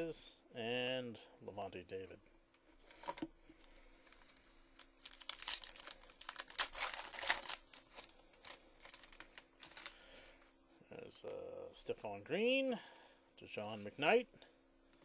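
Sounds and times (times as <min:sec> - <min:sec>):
foil wrapper crinkling and tearing: 0:04.0 - 0:10.0.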